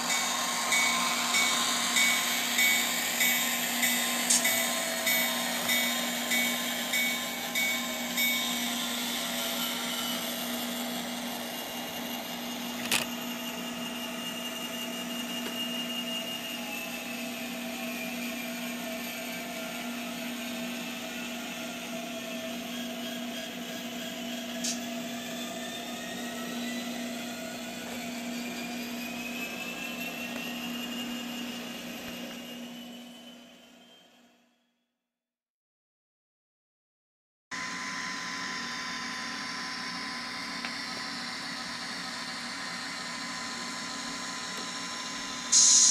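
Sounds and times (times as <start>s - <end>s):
model locomotive diesel engine sound: 0.0s - 34.4s, 37.6s - 45.9s
sharp click: 4.3s - 4.6s.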